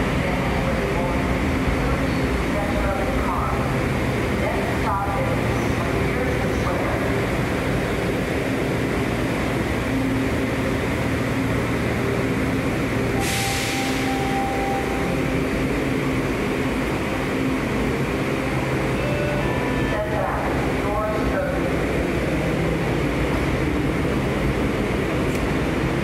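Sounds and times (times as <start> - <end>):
subway train rumbling: 0.0 - 26.0
air hiss burst: 13.2 - 14.1.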